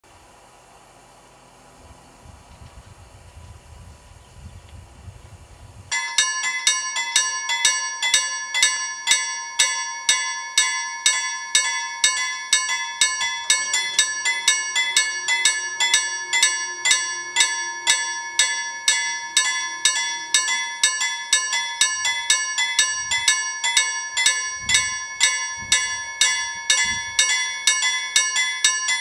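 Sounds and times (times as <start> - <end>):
wind rumble on microphone: 1.7 - 5.9, 22.8 - 23.3, 24.4 - 27.4
level crossing warning bell: 5.9 - 29.0.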